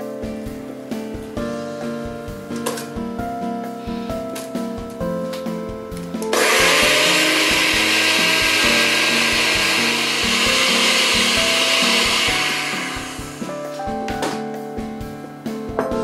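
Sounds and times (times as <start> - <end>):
blender running: 6.3 - 13.8.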